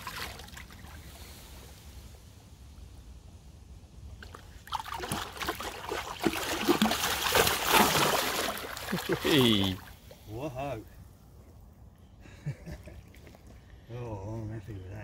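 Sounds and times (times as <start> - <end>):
water sloshing and splashing: 0.0 - 1.1, 4.2 - 10.2
fish thrashing in water: 4.2 - 9.9.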